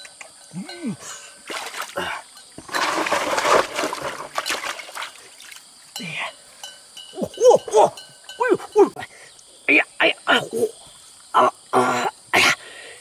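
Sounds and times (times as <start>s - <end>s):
water splashing: 1.4s - 5.6s.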